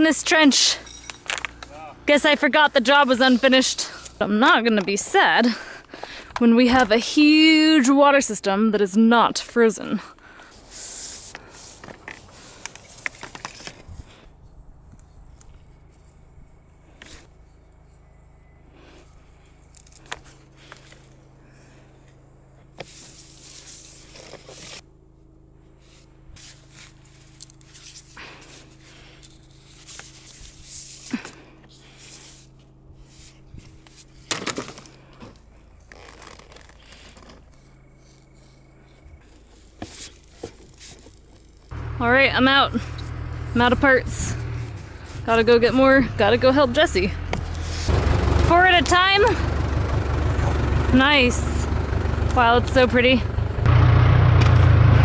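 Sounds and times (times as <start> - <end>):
plastic rubbing and scraping: 22.8 - 24.8, 29.2 - 41.7, 47.3 - 47.9.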